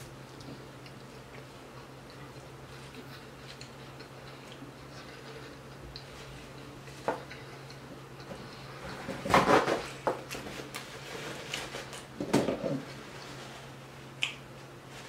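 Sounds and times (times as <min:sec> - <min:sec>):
close chewing with mouth clicks: 0:00.0 - 0:08.8.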